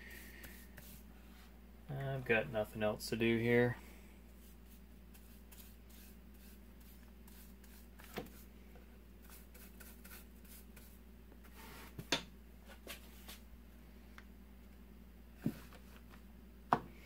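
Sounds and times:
paintbrush scratching on wood: 0.1 - 1.0, 4.4 - 8.5, 9.2 - 11.0.

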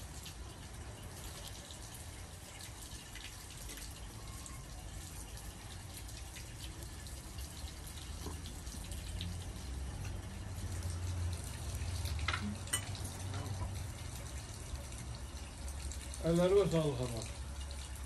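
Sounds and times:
wet eating sounds: 5.8 - 13.9.

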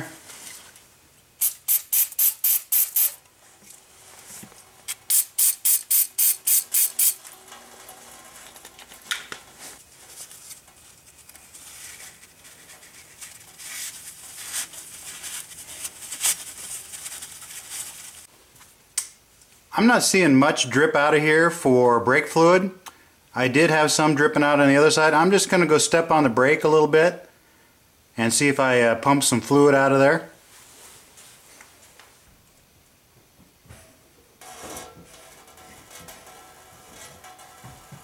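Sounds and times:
aerosol spray hissing: 1.4 - 3.2, 5.1 - 7.2
rubbing and handling noises: 9.4 - 18.8.

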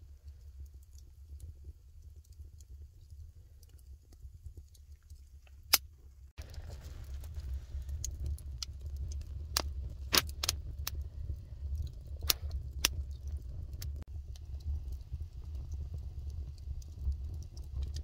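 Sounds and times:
fire popping: 0.0 - 18.0
wood fire crackling: 0.0 - 18.0
steady low rumble: 5.7 - 18.0.

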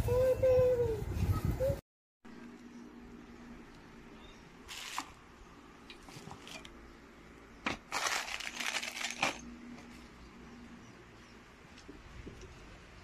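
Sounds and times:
plastic packaging crinkling: 4.7 - 5.1, 7.7 - 9.5.

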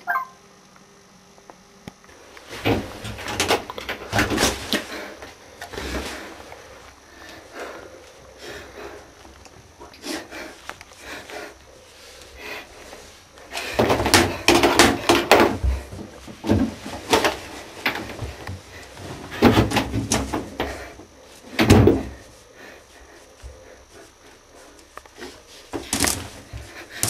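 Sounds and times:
clatter and knocks in tiled room: 2.4 - 6.3, 13.5 - 22.2, 25.7 - 27.0.

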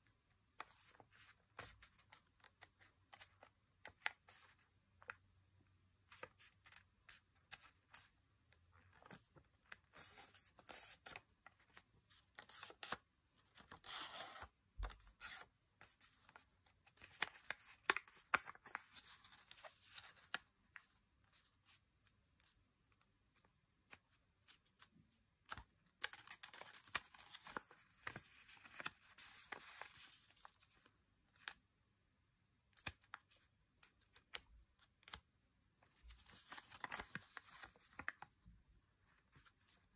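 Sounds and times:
paper rustling and crinkling: 25.5 - 31.6, 35.8 - 38.4.

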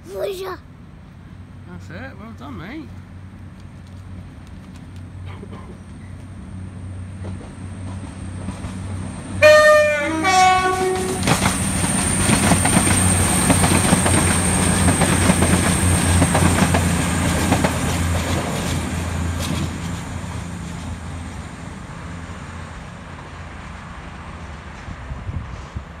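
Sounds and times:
diesel train engines running: 0.0 - 26.0
train wheels clattering on track: 2.9 - 21.4
two-tone train horn: 9.4 - 11.3.

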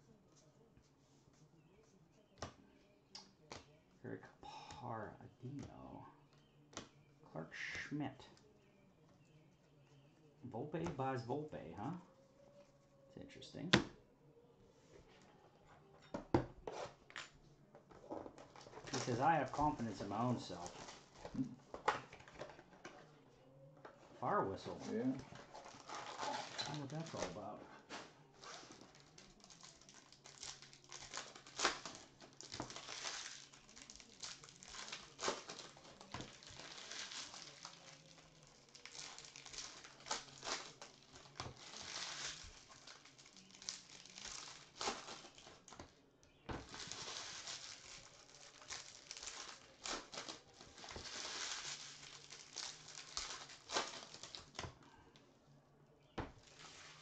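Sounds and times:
trading cards rustling: 24.0 - 45.9, 46.5 - 54.7.

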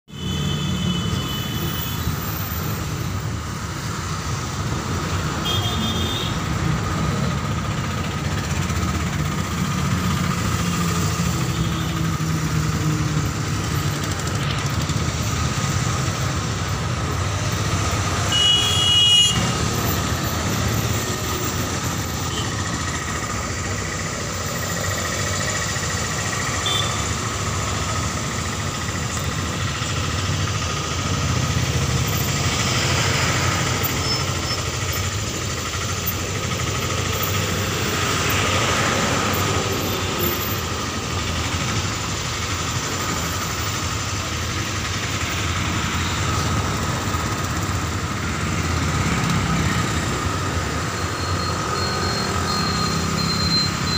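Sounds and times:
traffic rumble: 0.1 - 53.9
short vehicle horn: 5.4 - 6.4, 18.3 - 19.6, 26.6 - 27.1.

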